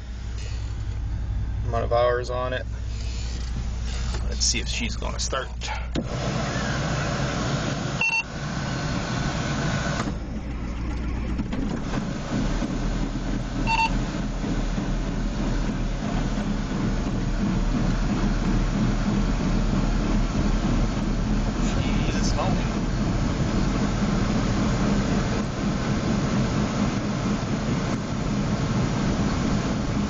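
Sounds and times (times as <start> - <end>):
diesel engine starting and running: 0.0 - 30.0
short electronic beep: 13.7 - 14.0.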